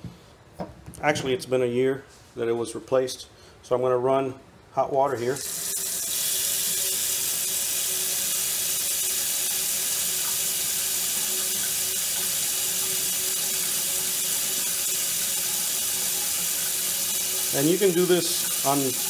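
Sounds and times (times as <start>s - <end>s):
faucet water splashing into sink: 5.4s - 19.0s.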